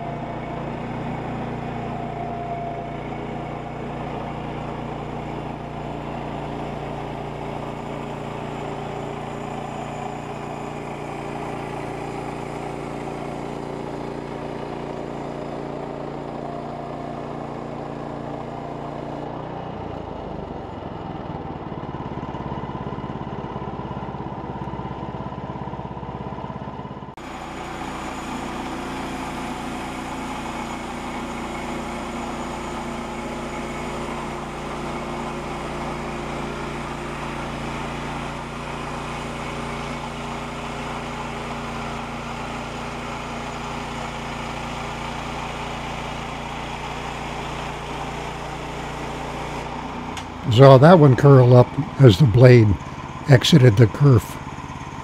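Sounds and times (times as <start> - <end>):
bandsaw mill cutting log: 0.0 - 26.6, 27.2 - 53.3.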